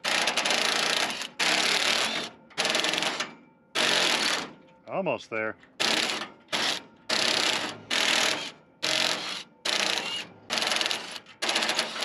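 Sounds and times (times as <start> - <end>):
impact driver hammering: 5.8 - 12.0.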